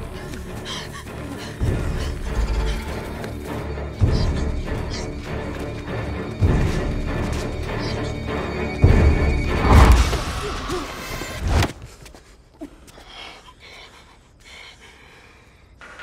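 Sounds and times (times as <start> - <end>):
dramatic film score: 0.0 - 16.0.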